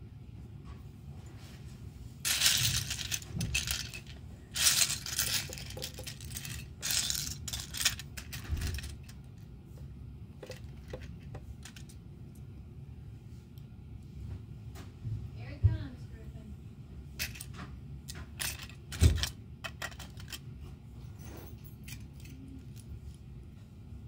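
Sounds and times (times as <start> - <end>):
plastic toy bricks clattering: 2.2 - 9.4, 10.4 - 12.0, 18.3 - 20.4.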